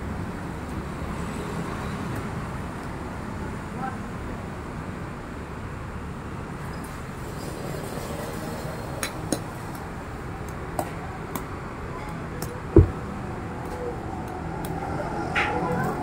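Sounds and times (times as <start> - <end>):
steady background noise: 0.0 - 16.0
dull thump: 12.7 - 13.1.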